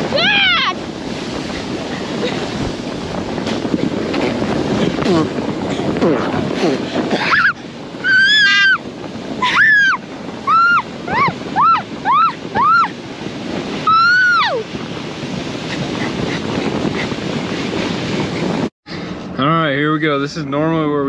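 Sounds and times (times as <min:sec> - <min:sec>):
wind on microphone: 0:00.0 - 0:21.0
person shrieking: 0:07.2 - 0:08.8.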